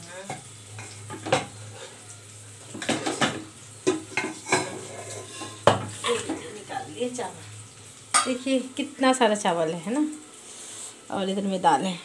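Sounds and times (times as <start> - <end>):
ladle scraping cooking pot: 2.8 - 6.4.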